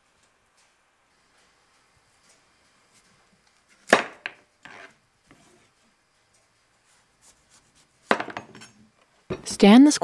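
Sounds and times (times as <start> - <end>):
knife blade scraping: 4.6 - 5.0.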